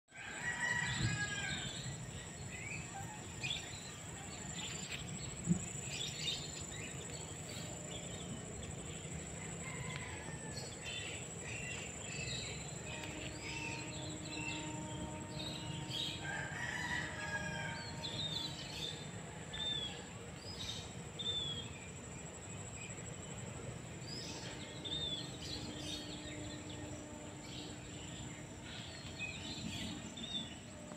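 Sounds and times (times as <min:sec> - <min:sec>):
high-pitched insect drone: 0:00.2 - 0:30.9.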